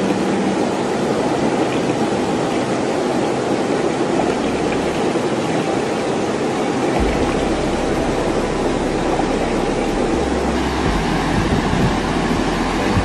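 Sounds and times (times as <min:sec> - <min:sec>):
river water rushing: 0:00.0 - 0:13.0
water splashing: 0:00.0 - 0:13.0
low rumble: 0:07.0 - 0:13.0.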